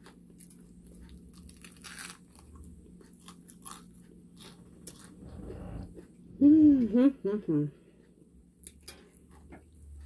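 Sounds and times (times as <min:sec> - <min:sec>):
chewing crispy fried chicken: 0:00.0 - 0:05.2.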